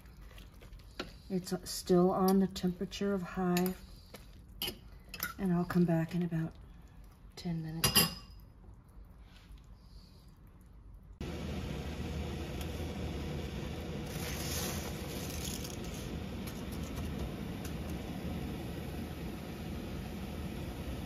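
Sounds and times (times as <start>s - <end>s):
water boiling in pot: 0.0s - 21.0s
hiss of pasta entering water: 13.8s - 17.9s.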